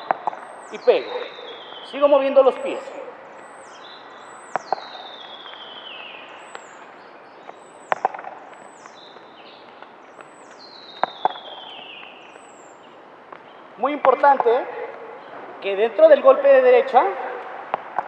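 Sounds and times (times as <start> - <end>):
tennis ball bouncing on clay: 0.0 - 1.9, 4.5 - 5.6, 6.4 - 12.4, 13.3 - 15.1, 17.0 - 18.0
birds whistling: 0.0 - 17.4
racket striking tennis ball: 4.5 - 5.2, 7.9 - 8.5, 11.0 - 12.0, 17.4 - 18.0.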